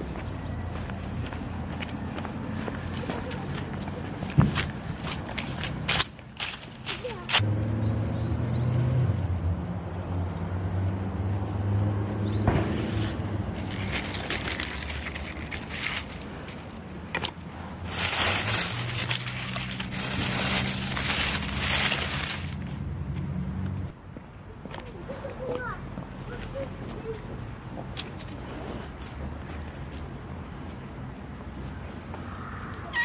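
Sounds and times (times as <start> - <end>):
dry leaves rustling: 2.6 - 7.4, 12.7 - 23.0.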